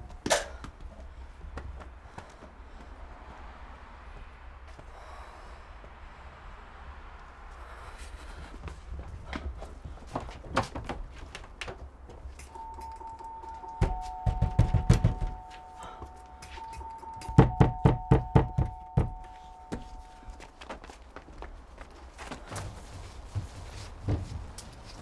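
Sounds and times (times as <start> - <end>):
two-note high tone: 12.5 - 20.4
knocking on wooden door: 13.8 - 15.5, 17.4 - 19.2.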